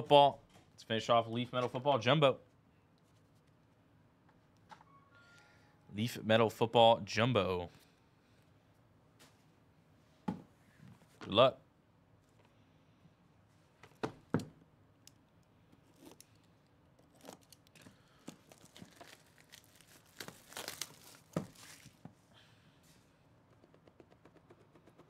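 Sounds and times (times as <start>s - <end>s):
plastic shrink wrap tearing: 17.0s - 22.0s.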